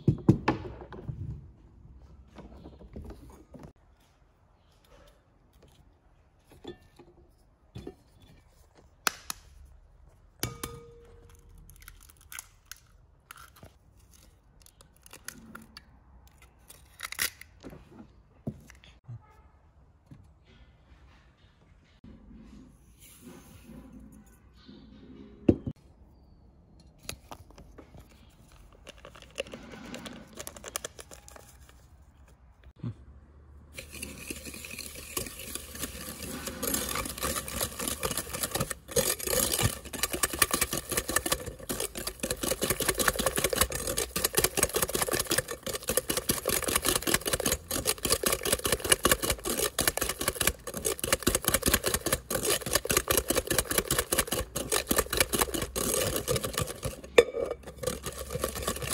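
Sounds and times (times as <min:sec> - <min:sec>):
whisk rattling in glass bowl: 0:33.8 - 0:58.9.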